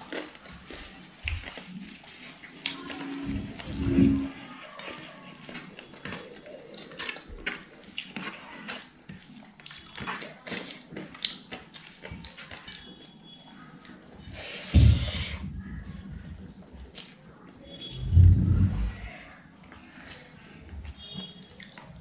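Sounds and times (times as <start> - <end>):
mouth chewing and smacking: 0.0 - 3.0, 4.8 - 14.4, 16.8 - 18.1, 20.8 - 22.0.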